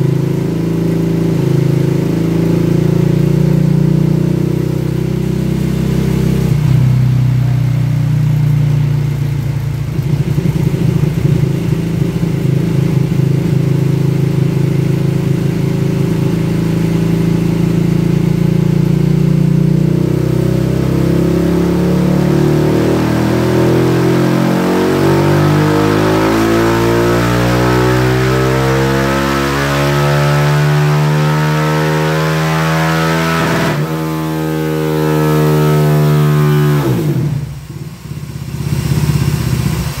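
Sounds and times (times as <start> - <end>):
engine revving under load: 14.1 - 38.0.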